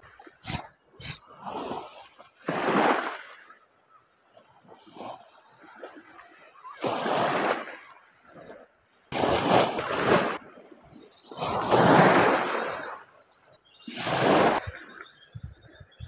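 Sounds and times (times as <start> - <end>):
small waves splashing on shore: 1.0 - 3.5, 4.6 - 13.1, 13.9 - 15.2
sharp clicks: 11.4 - 11.9.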